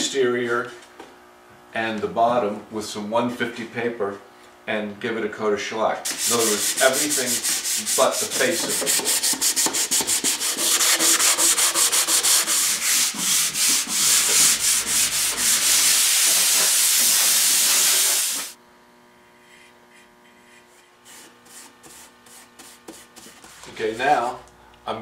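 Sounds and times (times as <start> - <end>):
hand sanding wood: 6.0 - 18.6, 20.5 - 24.4.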